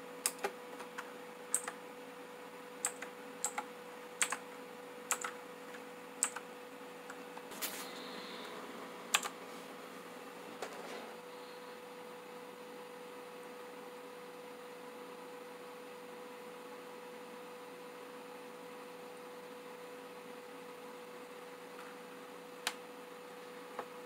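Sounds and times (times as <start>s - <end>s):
faint steady hum: 0.0s - 24.0s
clicky keyboard key presses: 0.2s - 1.8s, 2.8s - 4.4s, 5.1s - 5.4s, 6.2s - 6.4s.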